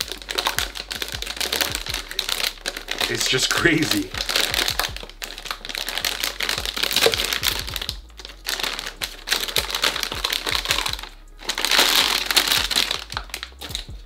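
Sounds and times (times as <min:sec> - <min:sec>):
plastic bag crinkling: 0:00.0 - 0:13.9.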